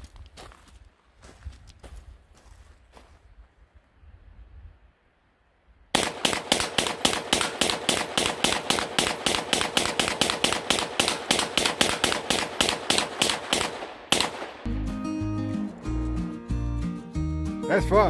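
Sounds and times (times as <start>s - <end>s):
pistol rapid fire: 6.0s - 14.7s
music: 14.7s - 18.0s.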